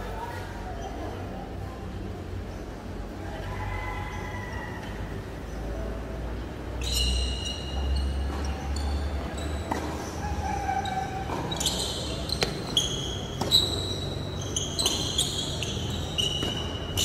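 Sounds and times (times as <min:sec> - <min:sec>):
shoe squeaks: 0:06.8 - 0:17.0
tennis ball hit by rackets: 0:09.2 - 0:10.2, 0:12.3 - 0:13.8, 0:16.3 - 0:17.0.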